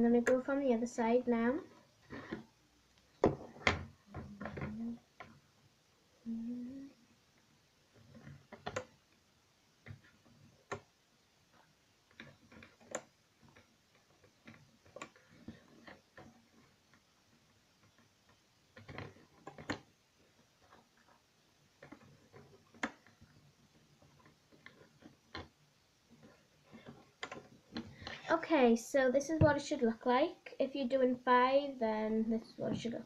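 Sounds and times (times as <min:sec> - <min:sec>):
loom bands clicking onto pegs: 0:08.0 - 0:09.1, 0:09.8 - 0:10.9, 0:11.6 - 0:28.3.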